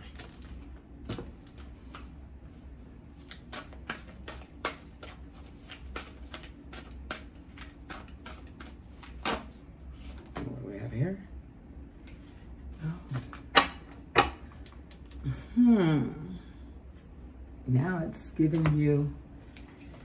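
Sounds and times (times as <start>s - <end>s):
cards being shuffled: 3.1s - 10.4s, 18.5s - 20.0s.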